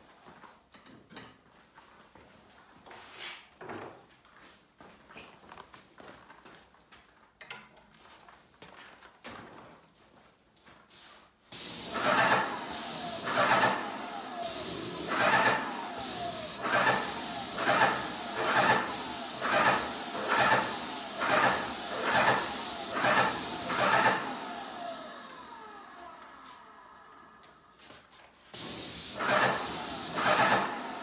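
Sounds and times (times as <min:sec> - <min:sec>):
paint sprayer hissing: 0:11.5 - 0:24.5, 0:28.5 - 0:31.0.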